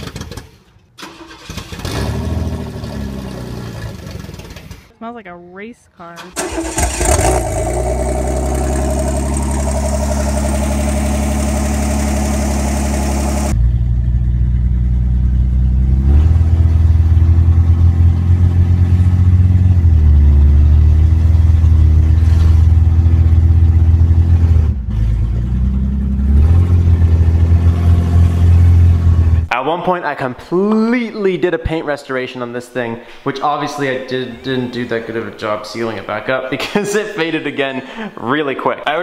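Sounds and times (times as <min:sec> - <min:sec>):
pickup engine running: 0:06.3 - 0:24.4.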